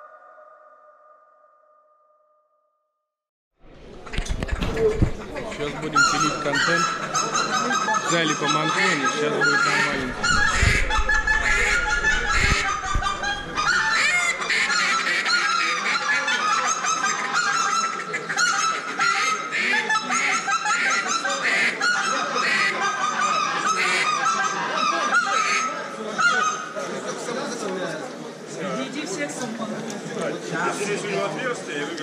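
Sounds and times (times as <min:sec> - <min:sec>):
geese honking: 0:04.1 - 0:26.7.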